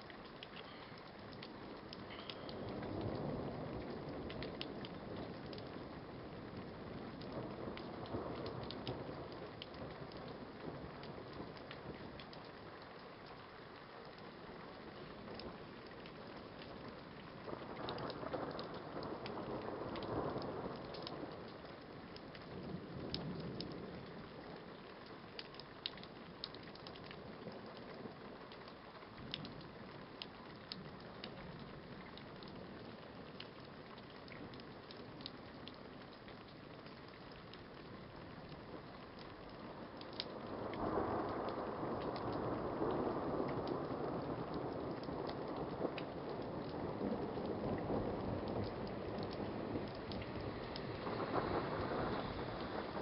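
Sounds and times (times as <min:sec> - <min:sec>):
raindrops ticking on a surface: 0:00.0 - 0:53.0
steady rain: 0:00.0 - 0:53.0
thunder rumble: 0:39.7 - 0:53.0.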